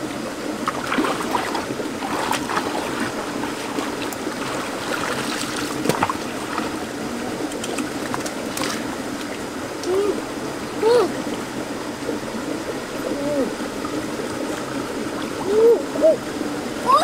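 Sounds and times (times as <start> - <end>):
stream trickling over stones: 0.0 - 17.0
splashes and knocks in water: 0.6 - 6.8, 7.5 - 9.3.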